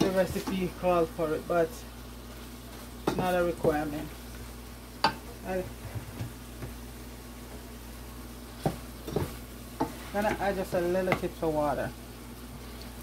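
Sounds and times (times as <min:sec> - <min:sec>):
faint sizzle: 0:00.0 - 0:13.0
wooden spoon stirring stew: 0:08.6 - 0:11.5.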